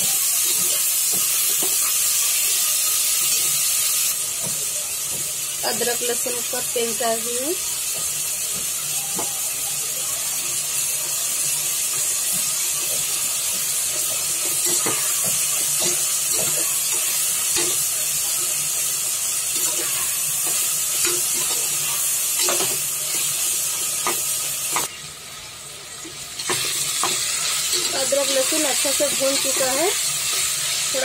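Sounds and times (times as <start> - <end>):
hot oil sizzling in a pot: 0.0 - 31.0.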